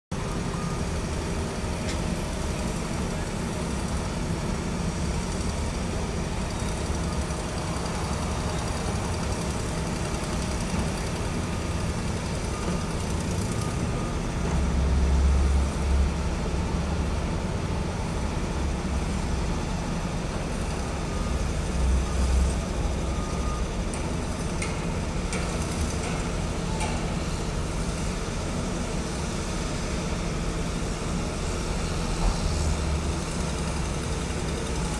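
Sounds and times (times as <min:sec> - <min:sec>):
heavy truck engines rumbling: 0:00.1 - 0:34.9
road traffic: 0:00.1 - 0:34.9.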